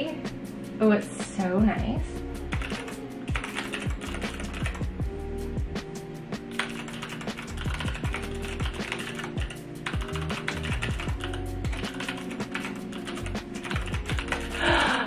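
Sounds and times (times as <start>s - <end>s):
background music: 0.0s - 15.0s
mechanical keyboard clicks: 2.5s - 4.8s, 6.6s - 14.6s.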